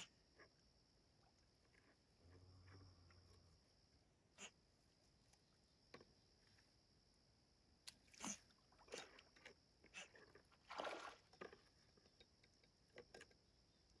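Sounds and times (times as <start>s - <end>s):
otter snorting: 8.1s - 9.2s
water splashing: 8.1s - 12.0s.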